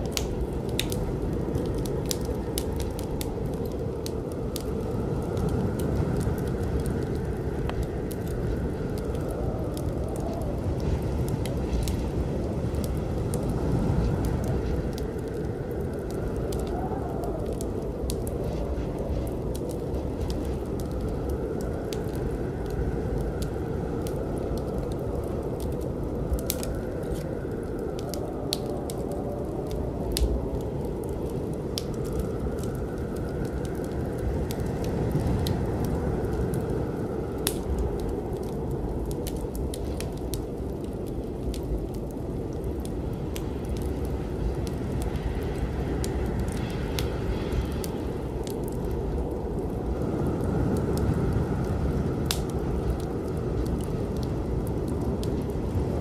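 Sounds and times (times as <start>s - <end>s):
low rumbling noise: 0.0s - 56.0s
sharp crackles and clicks: 0.0s - 56.0s
faint hiss: 41.2s - 56.0s.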